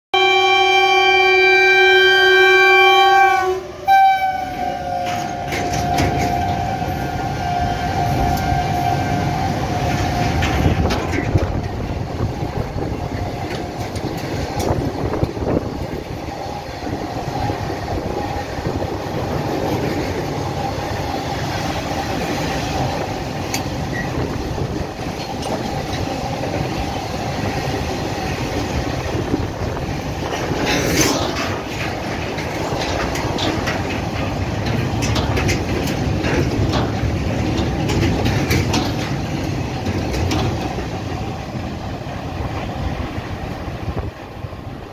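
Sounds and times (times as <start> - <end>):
locomotive horn: 0.2 - 10.6
freight train rumbling past: 0.2 - 44.9
wheels clattering over rail joints: 4.3 - 44.9.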